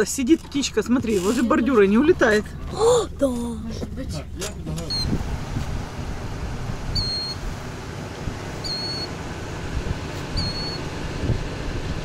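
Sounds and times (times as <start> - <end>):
steady low rumble: 0.0 - 12.0
bird peeping: 4.9 - 5.2, 6.9 - 7.4, 8.6 - 9.1, 10.3 - 10.8.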